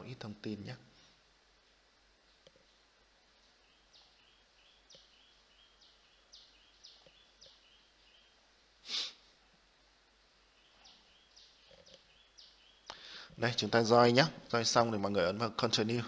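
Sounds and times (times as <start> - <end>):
faint bird chirping: 0.0 - 16.0
soft mouse clicks: 2.4 - 2.7, 4.9 - 5.1.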